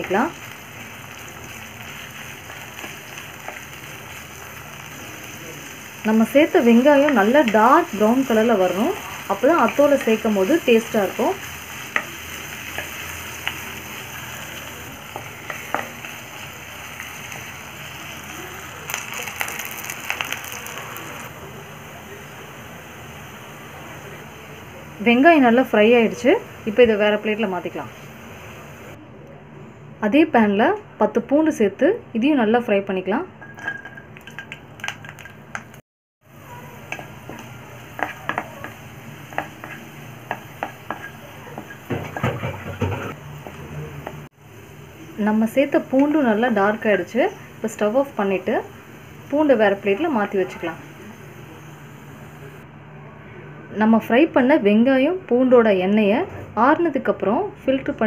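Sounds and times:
onions sizzling in hot oil: 0.0 - 29.0, 33.5 - 52.6
spatula scraping a pan: 38.0 - 43.2.

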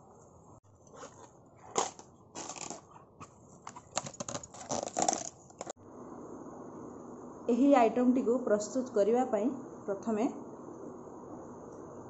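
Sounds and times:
banana stems crackling and crunching: 0.9 - 5.7.

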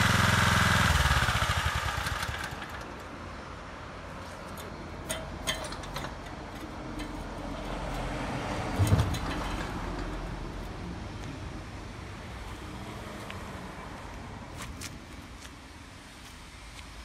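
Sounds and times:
tiller engine running: 0.0 - 3.0
sharp metal clanks: 4.6 - 7.7.

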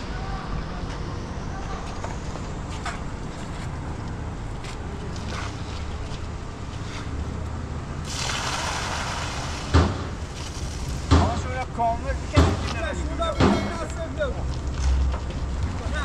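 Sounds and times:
wet concrete sliding out: 8.0 - 11.1.

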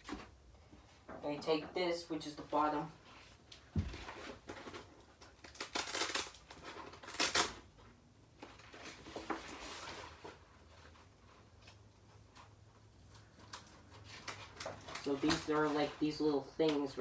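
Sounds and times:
plastic cover rustling: 2.2 - 17.0.

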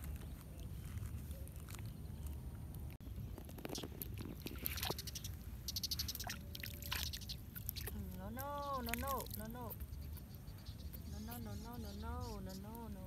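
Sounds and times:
water dripping: 3.5 - 9.9
water splashing: 3.6 - 9.8.

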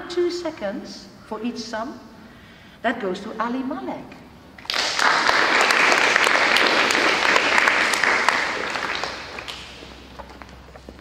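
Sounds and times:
audience clapping: 4.6 - 10.5.

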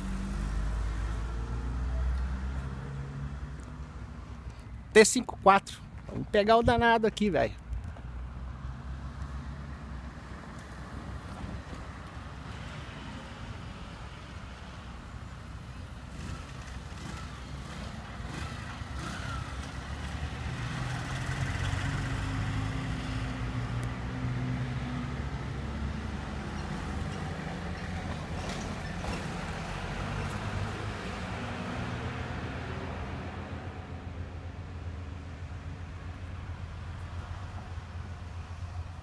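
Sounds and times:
passing traffic rumble: 0.0 - 39.0
motorcycle engine passing: 16.1 - 23.2.

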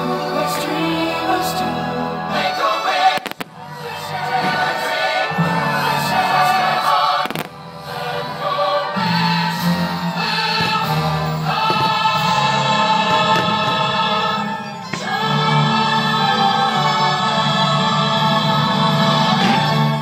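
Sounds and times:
choir and orchestra music: 0.0 - 20.0
firework bangs: 3.0 - 4.9, 7.1 - 7.6, 10.4 - 15.3.

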